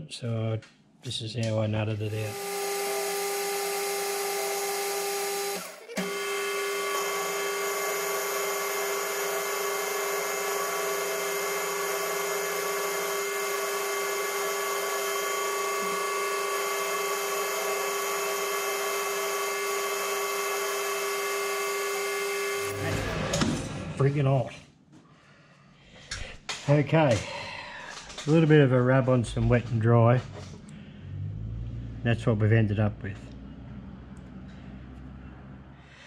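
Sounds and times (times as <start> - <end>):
parting tool cutting metal: 2.1 - 23.5
metal lathe humming: 2.1 - 24.0.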